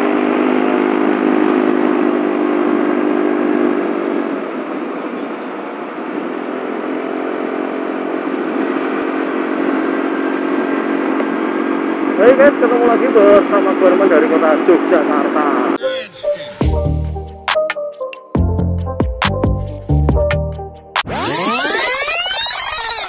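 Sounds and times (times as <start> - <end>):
scooter engine running: 0.0 - 15.7
wind and road noise: 0.0 - 15.7.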